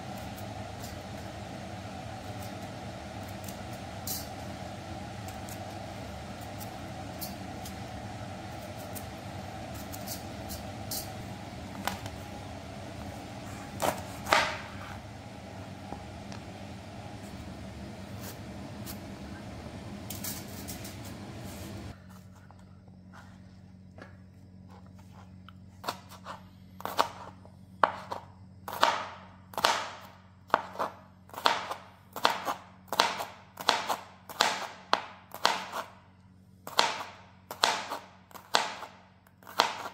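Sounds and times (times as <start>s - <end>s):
steady hiss: 0.0s - 4.5s
knife chopping on cutting board: 13.7s - 15.0s, 25.9s - 35.9s, 36.7s - 39.9s.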